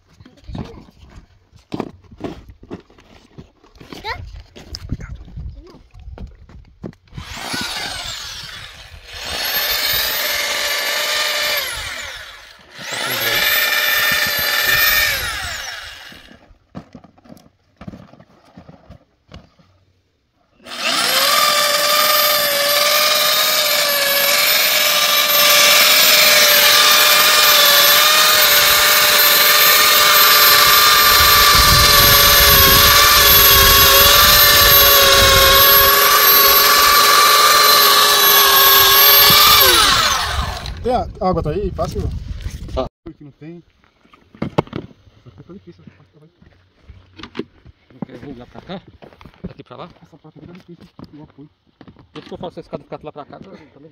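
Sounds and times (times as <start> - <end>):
welder motor whirring: 7.2 - 16.4, 20.6 - 40.9.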